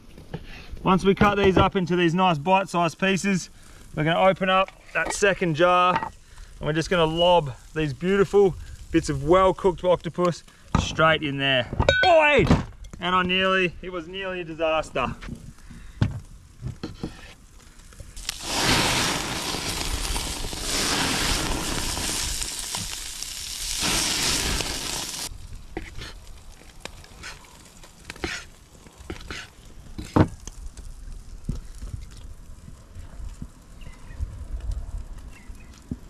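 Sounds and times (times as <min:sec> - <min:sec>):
octopus sizzling on a hot grill: 0:02.6 - 0:10.7, 0:15.5 - 0:34.1.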